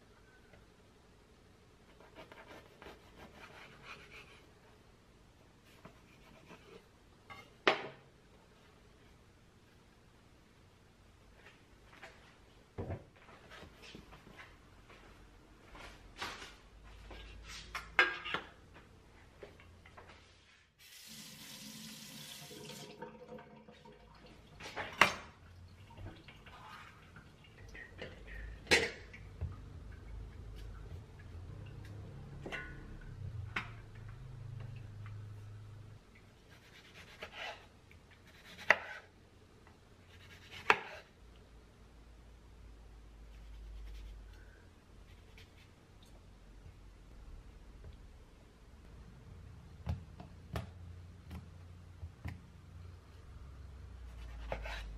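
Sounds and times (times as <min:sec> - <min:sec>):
kitchen tap running: 0:20.8 - 0:26.5
knife slicing tomatoes: 0:36.5 - 0:39.1, 0:40.1 - 0:41.1, 0:54.1 - 0:54.9.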